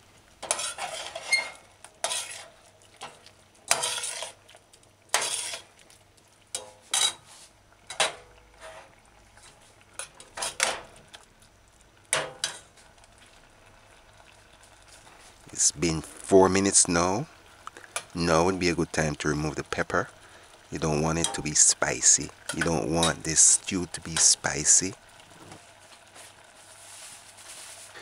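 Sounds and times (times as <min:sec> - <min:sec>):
metal spoon scraping a saucepan: 0:00.4 - 0:02.6, 0:03.7 - 0:04.4, 0:05.1 - 0:05.7.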